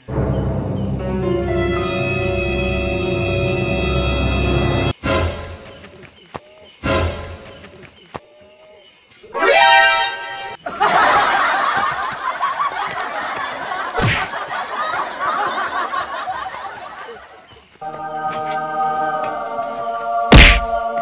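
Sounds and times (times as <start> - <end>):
held musical chord: 0.0 - 5.7
loud shrill note: 0.1 - 5.6
people laughing: 10.6 - 18.7
sharp smack: 14.0 - 14.3, 20.3 - 20.8.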